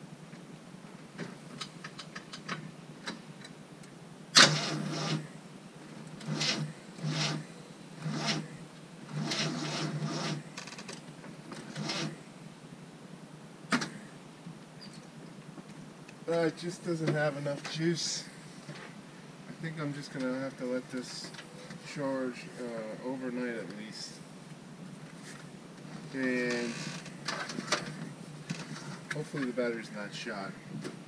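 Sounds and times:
starter cranking engine: 4.4 - 5.2, 6.2 - 7.4.

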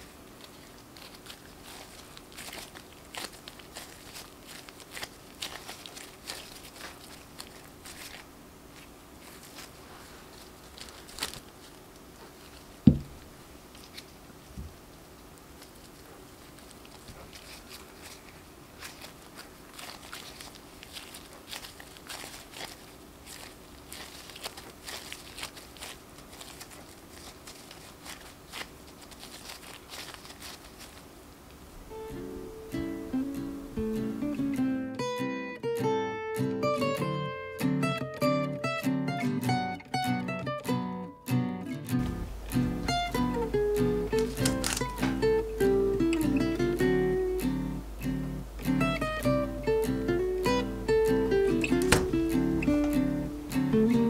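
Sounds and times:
dough squishing: 0.0 - 31.9, 42.0 - 54.0
plastic gloves crinkling: 0.0 - 40.8, 41.8 - 54.0
dull thump: 12.8 - 13.2, 41.9 - 43.5, 51.8 - 52.3
acoustic guitar music: 31.9 - 54.0.

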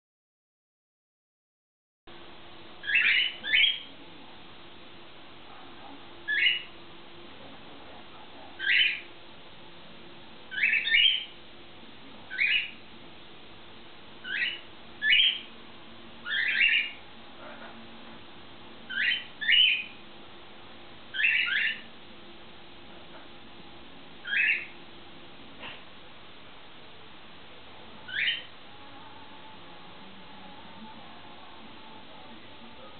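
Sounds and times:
cockatiels calling: 2.8 - 3.9, 6.3 - 6.7, 8.6 - 9.1, 10.5 - 11.4, 12.3 - 12.8, 14.2 - 15.5, 16.2 - 17.7, 18.9 - 20.0, 21.1 - 21.9, 24.2 - 24.8, 28.0 - 28.5.

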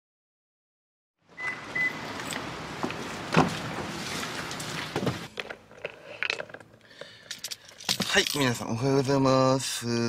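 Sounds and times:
car door opening and shutting: 1.4 - 5.3.

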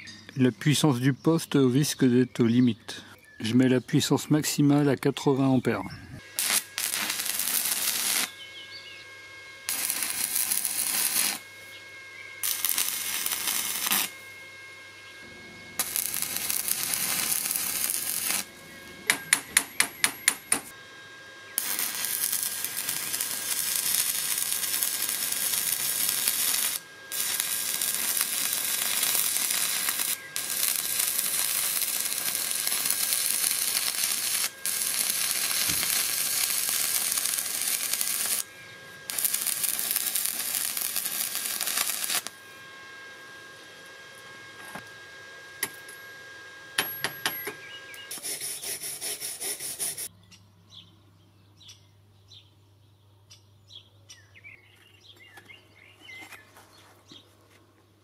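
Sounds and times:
welding arc crackling and hissing: 6.2 - 8.5, 9.6 - 14.3, 15.2 - 20.8, 21.6 - 42.5, 48.1 - 50.1.

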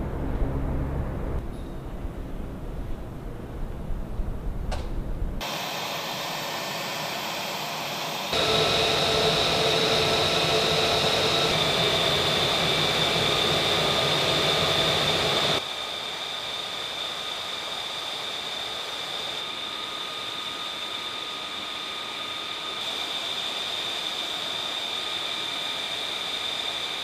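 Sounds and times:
jet engine high whine: 0.0 - 27.0
rush of air noise: 5.4 - 16.1.

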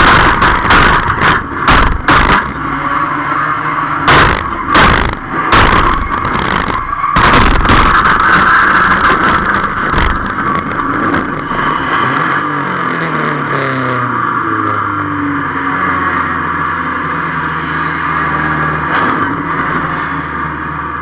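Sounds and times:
dull thump: 0.0 - 2.6, 4.1 - 10.8
sharp bangs of car contact: 0.0 - 2.8, 4.0 - 11.6
race car engine rattling: 0.0 - 14.5.

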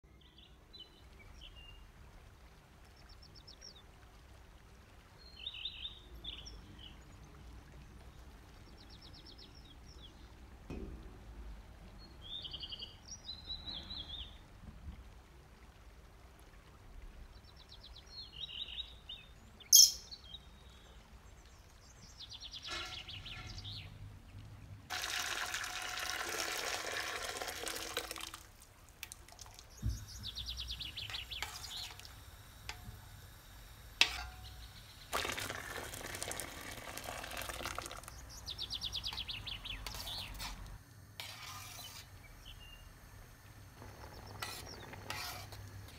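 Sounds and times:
birds chirping: 17.4 - 24.0, 29.5 - 35.4, 36.0 - 40.5, 43.8 - 45.1
sharp clink: 19.8 - 20.1
water pouring into a pot: 24.9 - 42.0.

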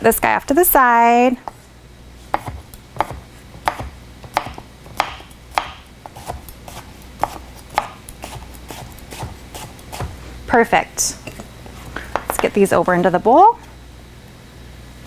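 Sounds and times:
knife chopping on wooden board: 2.3 - 10.2.

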